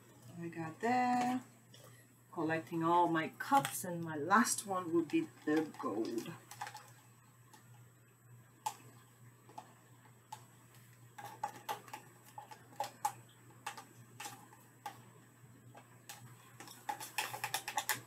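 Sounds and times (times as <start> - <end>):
faint low hum: 0.0 - 18.0
plastic cups clicking: 3.4 - 3.8, 4.4 - 7.7, 10.3 - 15.0, 15.8 - 18.0.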